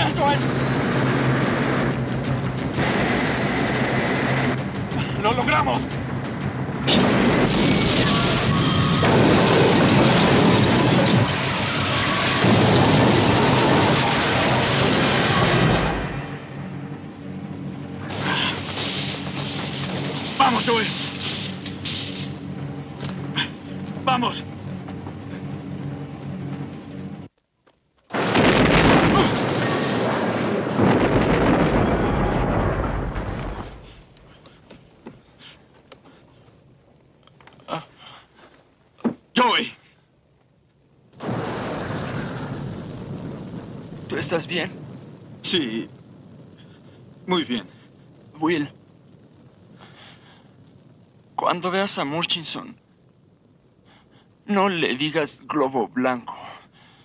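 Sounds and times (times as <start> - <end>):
spacecraft crash rumbling roar: 0.4 - 16.6, 28.2 - 33.9, 41.2 - 45.4.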